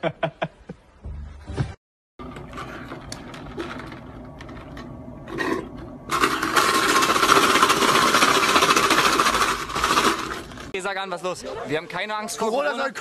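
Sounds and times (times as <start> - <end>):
drink cup rattling: 2.2 - 10.7.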